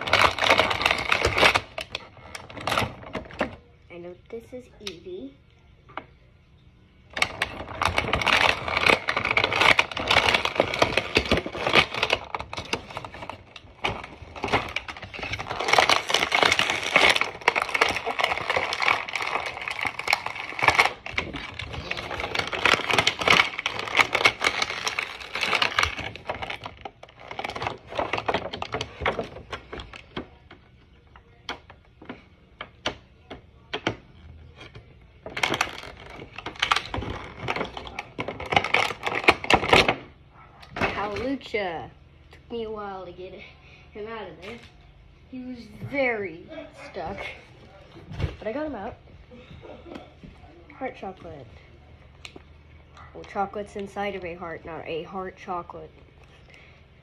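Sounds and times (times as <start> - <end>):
plastic bag crinkling: 0.0 - 4.1, 7.1 - 32.2, 34.2 - 40.1.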